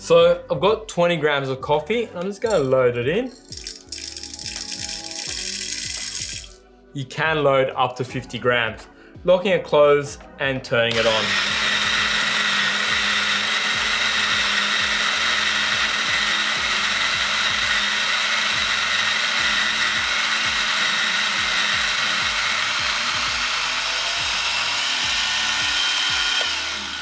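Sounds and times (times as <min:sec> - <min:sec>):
electric coffee grinder whine: 0:03.6 - 0:06.6, 0:10.9 - 0:27.0.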